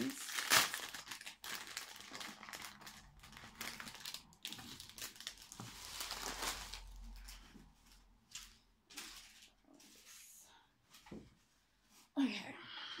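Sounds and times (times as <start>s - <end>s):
packing wrap crinkling: 0.0s - 7.5s.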